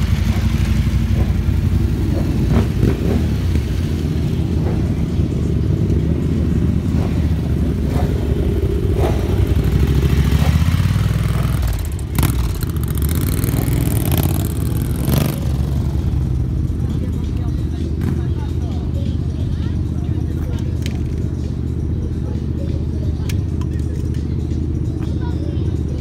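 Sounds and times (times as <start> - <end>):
motorcycle moving off close by: 0.0 - 16.5
motorcycle engines running: 0.0 - 26.0.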